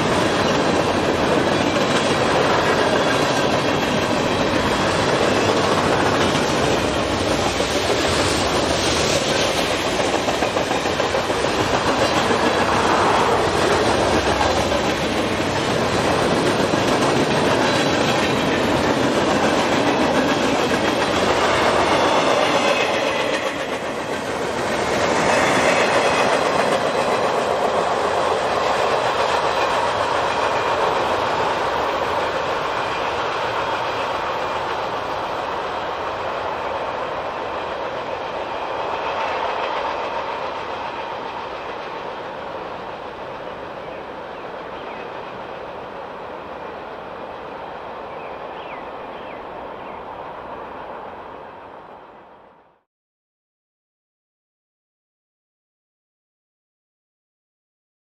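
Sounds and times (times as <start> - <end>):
train wheels clacking on rails: 0.0 - 49.4.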